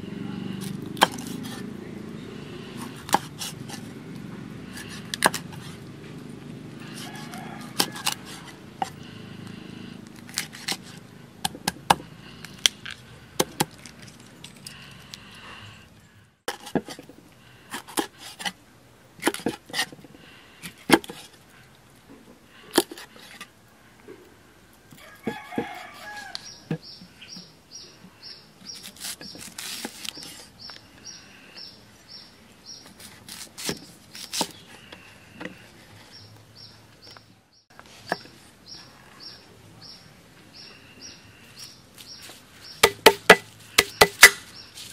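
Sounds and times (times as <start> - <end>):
cleaver chopping on wooden block: 0.9 - 1.6, 2.8 - 3.8, 4.8 - 5.6, 6.9 - 9.0, 11.4 - 12.1, 20.9 - 21.2, 42.8 - 44.5
chickens and birds calling: 6.6 - 11.2, 21.5 - 44.9.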